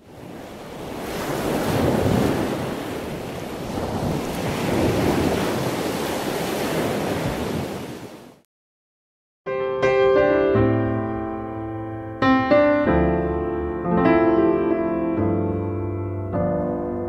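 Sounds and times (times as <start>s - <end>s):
waves washing on shore: 0.0s - 8.4s.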